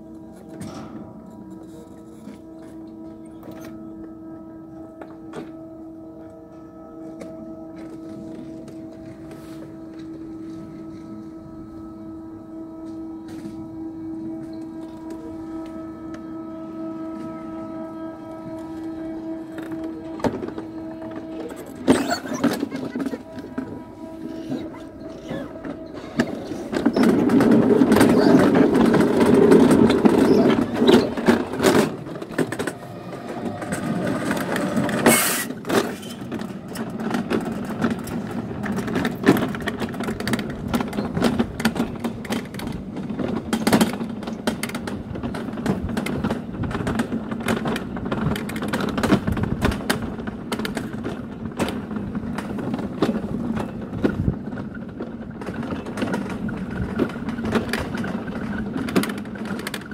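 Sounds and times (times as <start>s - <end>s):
toboggan rumbling down metal track: 0.0s - 59.9s
clacks and knocks: 19.5s - 59.9s.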